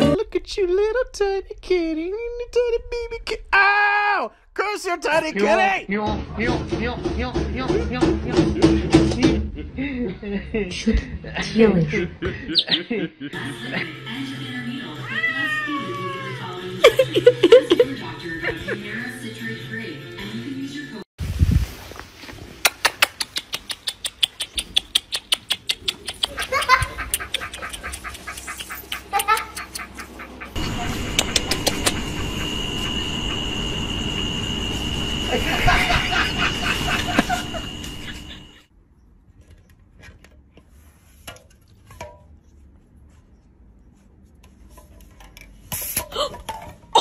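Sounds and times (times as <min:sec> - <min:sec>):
cat meowing: 0:15.0 - 0:16.5
fast even clicking: 0:22.6 - 0:30.1.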